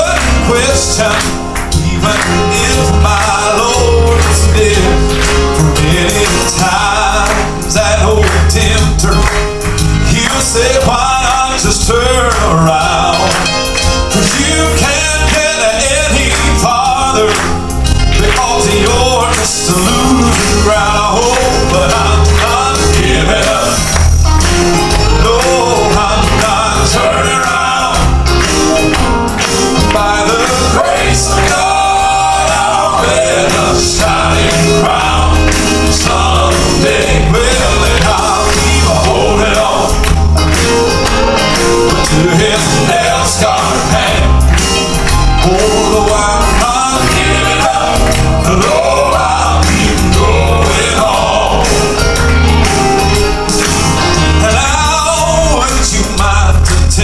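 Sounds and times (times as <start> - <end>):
male quartet singing in harmony: 0.0 - 52.3, 53.1 - 57.0
piano: 0.0 - 57.0
pulsing bass: 0.0 - 57.0.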